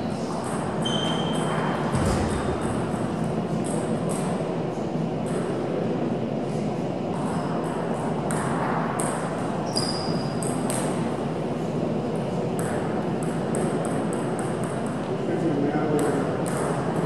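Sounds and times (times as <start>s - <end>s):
murmur of large hall: 0.0s - 17.0s
high squeak: 0.8s - 1.4s.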